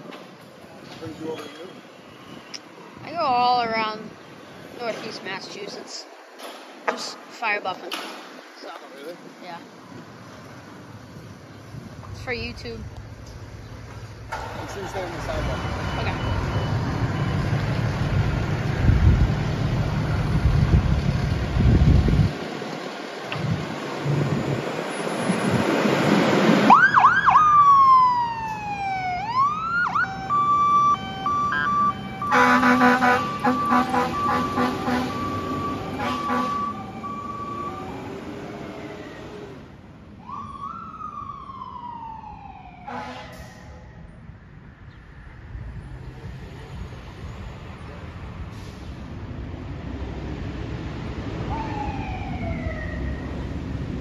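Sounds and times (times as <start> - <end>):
fire engine engine noise: 9.2 - 54.0
electronic siren wailing: 26.7 - 39.1, 51.5 - 53.4
air horn blasts: 32.2 - 35.3, 35.9 - 36.8, 42.8 - 43.5.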